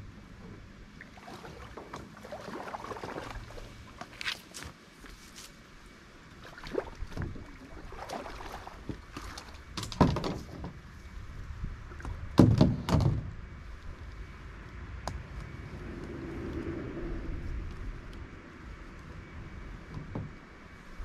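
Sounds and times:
low rush of river: 0.0 - 9.8.

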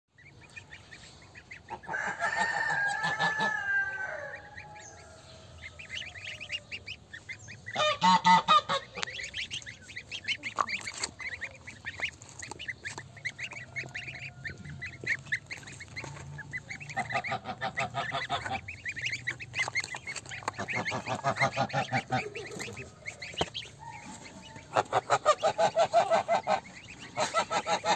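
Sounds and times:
goslings peeping: 0.1 - 27.9
goose honking: 0.2 - 27.9.

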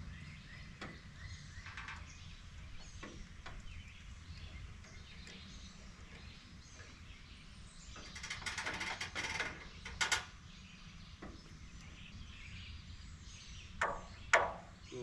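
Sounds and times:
low outdoor rumble: 0.0 - 15.0
rattling clatter of clicks: 7.9 - 10.3.

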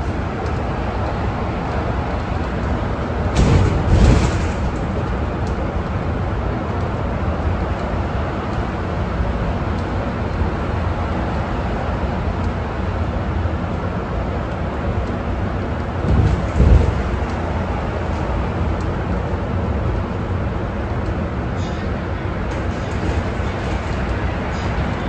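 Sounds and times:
bus drivetrain and road rumble: 0.0 - 25.0
low thud: 3.3 - 4.8.

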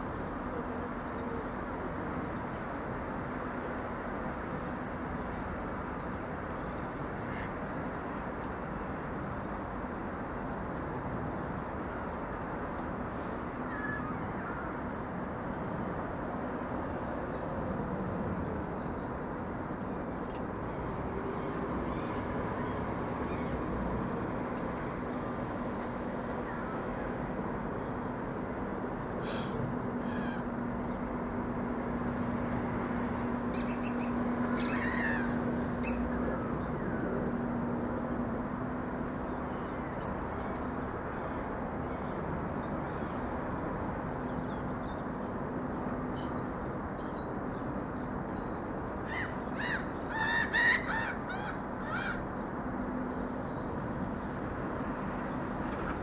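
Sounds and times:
harsh bird calls: 29.2 - 31.0, 33.4 - 37.8, 49.1 - 52.4
small birds chirping: 32.0 - 32.6, 33.5 - 37.8.

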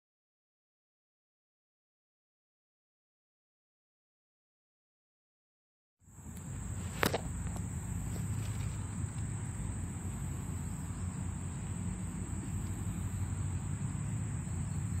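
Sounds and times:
insects trilling: 6.1 - 15.0
low rumbling noise: 6.1 - 15.0.

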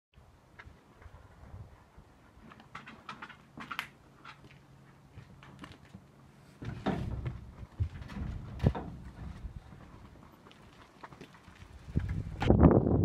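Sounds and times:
rustling and thumps: 6.6 - 10.2.

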